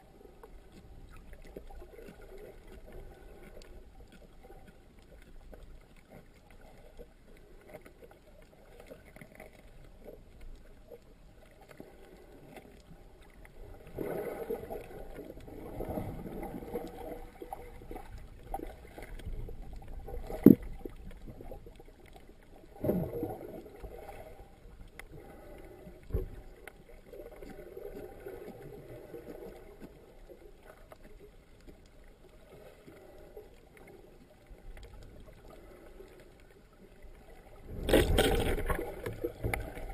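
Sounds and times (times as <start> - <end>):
muffled underwater swishing: 11.6 - 39.9.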